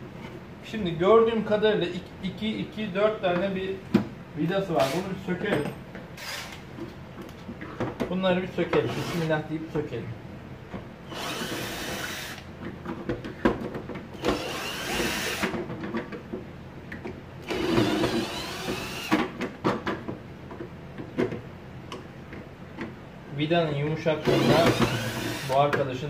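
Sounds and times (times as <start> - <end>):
handling clicks and knocks: 5.4 - 6.1
cordless drill running: 11.1 - 12.5, 14.2 - 15.5, 17.4 - 19.2, 24.3 - 25.6.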